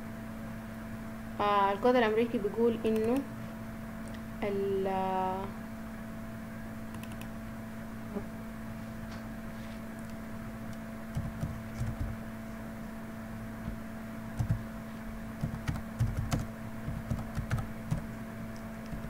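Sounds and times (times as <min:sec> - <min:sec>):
steady low hum: 0:00.0 - 0:19.0
computer keyboard typing: 0:06.9 - 0:07.3, 0:11.1 - 0:12.2, 0:14.4 - 0:14.6, 0:15.4 - 0:18.1, 0:18.8 - 0:19.0.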